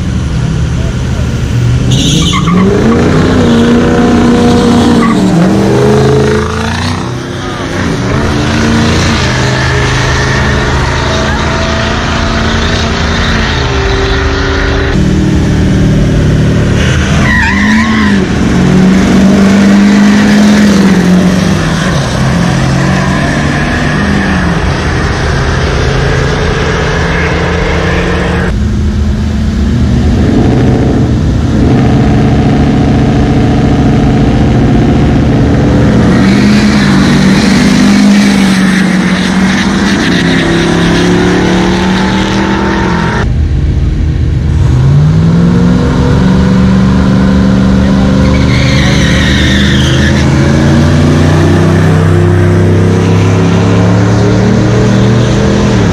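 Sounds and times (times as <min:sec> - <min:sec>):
pickup truck engines revving: 0:00.0 - 0:55.9.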